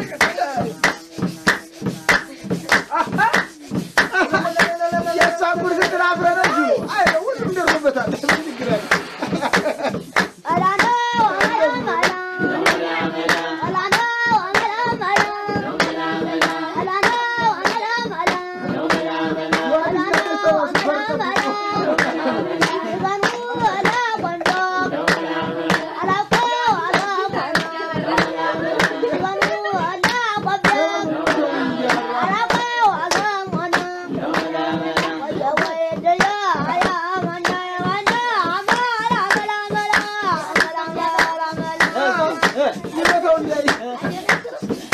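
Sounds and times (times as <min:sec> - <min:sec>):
rhythmic hand-clapping: 0:00.0 - 0:44.9
voices singing: 0:00.0 - 0:44.9.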